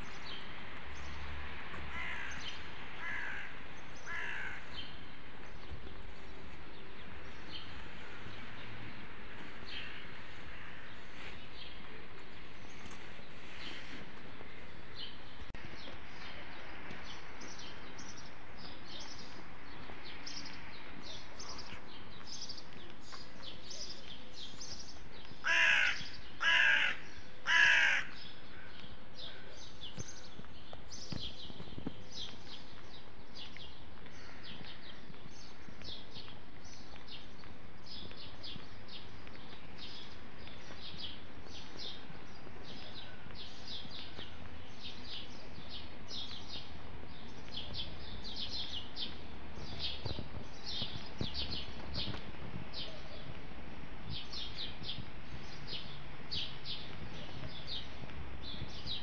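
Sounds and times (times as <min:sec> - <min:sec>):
small birds chirping: 0:00.0 - 0:59.0
crow cawing: 0:01.9 - 0:02.4, 0:03.0 - 0:04.7, 0:25.4 - 0:28.2.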